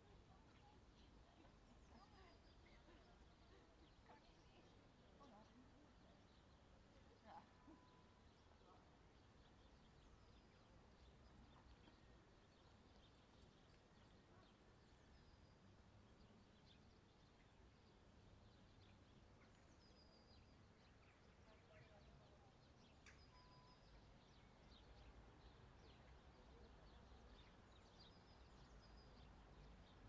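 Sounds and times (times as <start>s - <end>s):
low steady background hum: 0.0s - 30.0s
faint high chirps: 22.9s - 24.9s.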